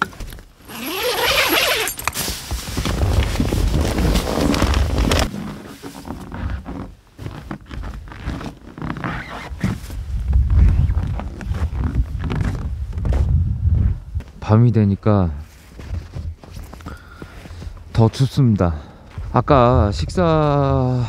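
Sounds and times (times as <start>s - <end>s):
rustling: 0.0s - 14.0s
tent zipper pulled open: 0.6s - 12.6s
low rumbling noise: 10.0s - 14.2s.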